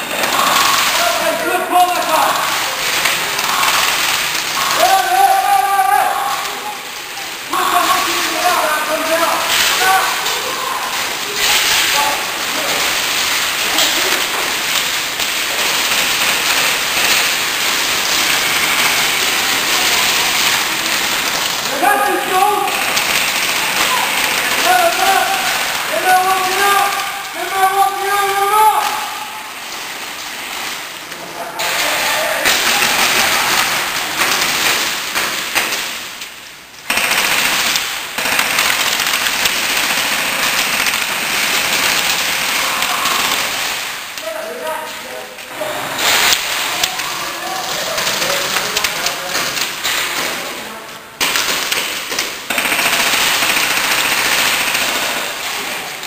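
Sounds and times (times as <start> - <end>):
airsoft gunfire: 0.0 - 6.6, 7.5 - 30.8, 31.6 - 36.2, 36.8 - 44.2, 45.9 - 47.0, 47.6 - 50.5, 51.2 - 55.8
pellets striking plywood: 31.6 - 36.2, 51.2 - 55.3.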